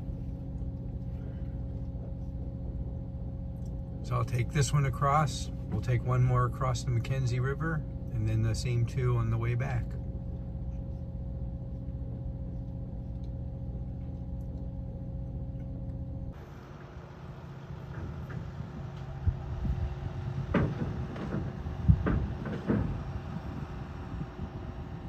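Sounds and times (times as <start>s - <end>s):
low engine drone: 0.0s - 25.0s
van driving onto gravel: 16.4s - 25.0s
thumps and knocks: 20.4s - 23.6s.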